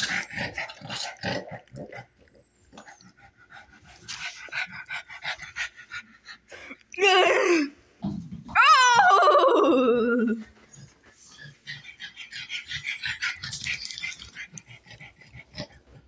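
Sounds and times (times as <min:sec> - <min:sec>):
small dog panting and snuffling: 0:02.7 - 0:06.8, 0:10.6 - 0:16.0.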